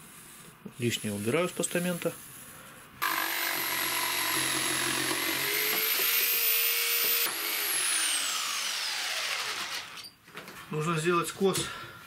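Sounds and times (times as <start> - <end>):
jigsaw cutting wood: 3.0 - 10.0.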